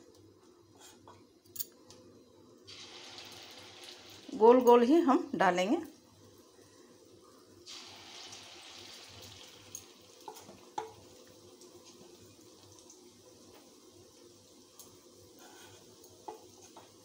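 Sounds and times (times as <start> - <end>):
batter sizzling in hot oil: 2.6 - 17.0.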